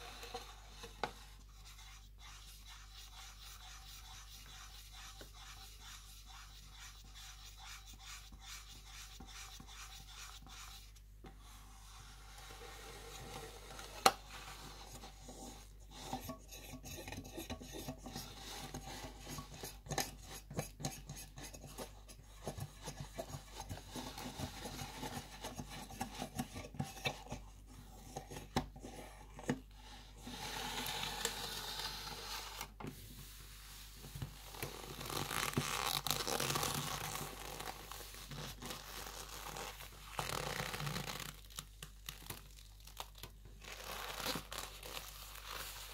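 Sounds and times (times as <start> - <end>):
gloves rubbing on drink can: 34.9 - 41.5.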